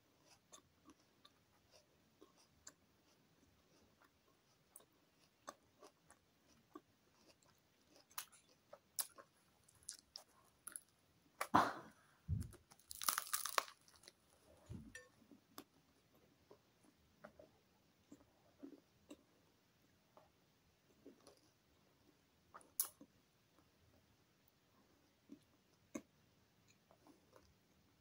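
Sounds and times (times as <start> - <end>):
chewing crusty bread: 0.0 - 11.5, 12.3 - 19.5, 20.1 - 27.9
crust crackling: 9.0 - 10.9, 12.3 - 14.4.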